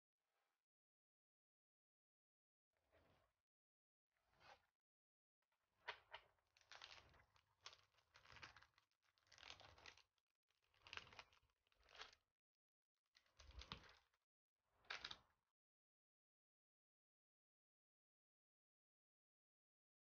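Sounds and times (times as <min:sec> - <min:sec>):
plastic packaging crinkling: 0:06.7 - 0:10.0, 0:10.7 - 0:12.2.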